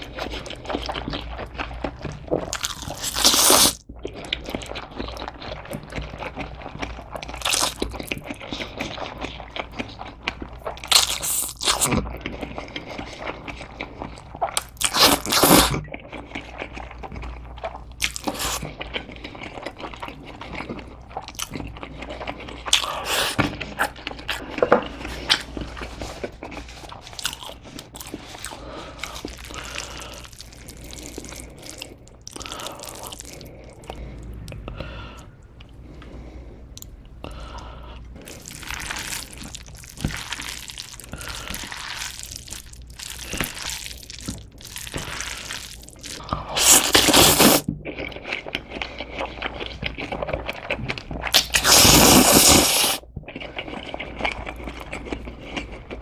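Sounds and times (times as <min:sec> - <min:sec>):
wet chewing: 0:00.0 - 0:56.0
person slurping noodles: 0:45.0 - 0:47.7, 0:51.3 - 0:53.0.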